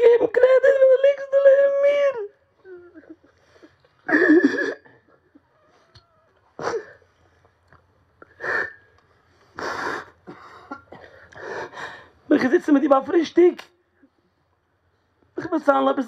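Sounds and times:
man sobbing: 0.0s - 5.6s, 6.6s - 7.2s.

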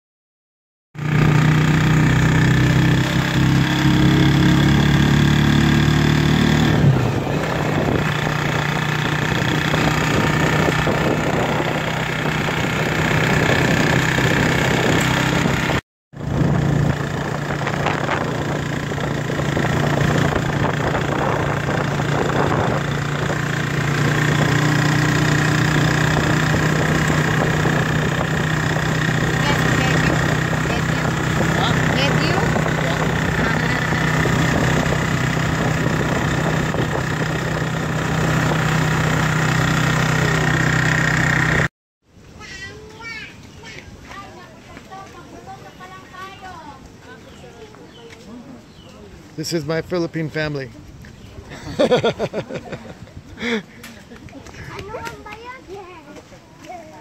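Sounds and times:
motorcycle engine running: 1.0s - 41.7s, 42.8s - 57.0s
road noise: 1.0s - 57.0s.

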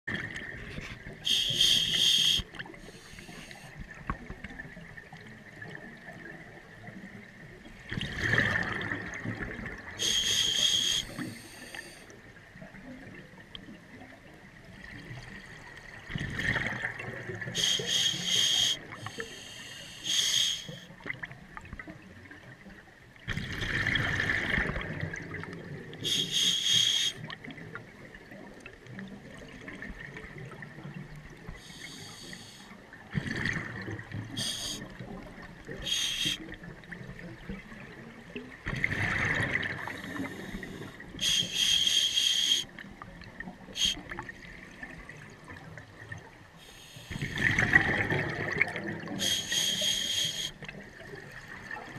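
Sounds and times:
exhaled bubbles underwater: 0.1s - 51.9s
hissing regulator breaths: 1.3s - 3.8s, 10.0s - 12.1s, 17.6s - 20.9s, 26.1s - 27.2s, 31.6s - 32.7s, 34.4s - 34.8s, 35.8s - 36.4s, 39.9s - 42.7s, 49.2s - 50.6s.

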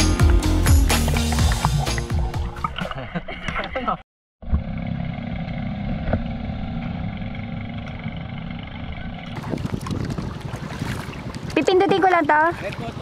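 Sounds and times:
small boat engine running: 4.4s - 13.0s.

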